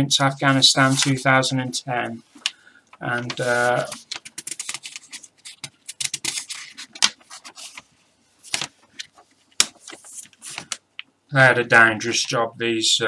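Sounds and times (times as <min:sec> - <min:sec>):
paper crackling and rustling: 0:00.4 - 0:01.3, 0:03.2 - 0:10.8
sharp paper crack: 0:03.2 - 0:10.8.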